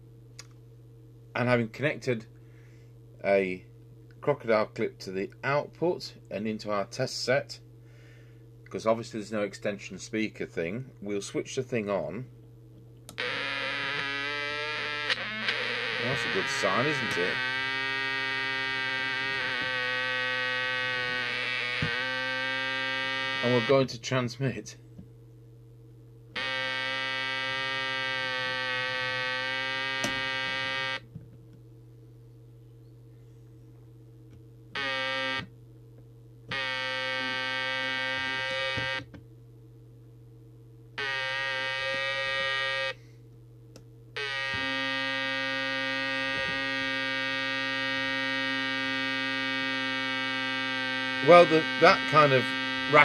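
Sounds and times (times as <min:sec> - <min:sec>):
low hum: 0:00.0 - 0:53.0
harsh buzzing from radio: 0:13.1 - 0:24.8, 0:26.4 - 0:31.1, 0:34.7 - 0:35.5, 0:36.5 - 0:39.2, 0:41.0 - 0:43.1, 0:44.2 - 0:53.0.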